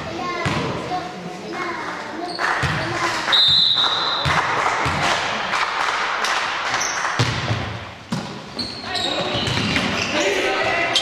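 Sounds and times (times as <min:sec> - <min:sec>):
hubbub in large room: 0:00.0 - 0:11.0
basketball bouncing on floor: 0:00.4 - 0:00.7, 0:02.6 - 0:03.0, 0:04.2 - 0:05.1, 0:07.2 - 0:10.0.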